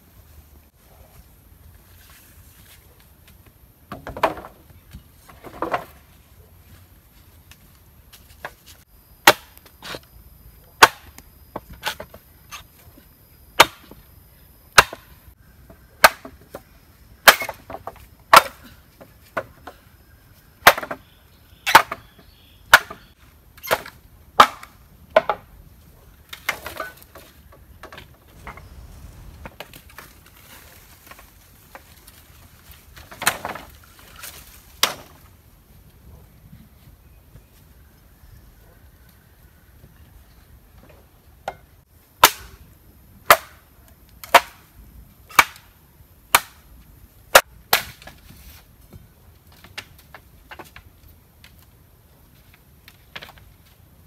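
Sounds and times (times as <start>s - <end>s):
machete chopping bamboo: 9.2s - 10.0s, 10.8s - 11.2s, 13.6s - 14.0s, 14.8s - 15.1s, 16.0s - 16.5s, 17.2s - 18.8s, 20.6s - 21.0s, 21.6s - 22.1s, 22.7s - 25.5s, 42.2s - 42.6s, 43.2s - 43.6s, 44.2s - 44.7s, 45.3s - 45.7s, 46.3s - 46.6s, 47.3s - 48.2s.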